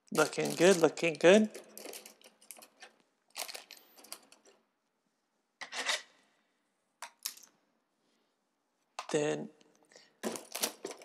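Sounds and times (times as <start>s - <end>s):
plastic rubbing and rustling: 0.1s - 4.3s, 10.2s - 11.0s.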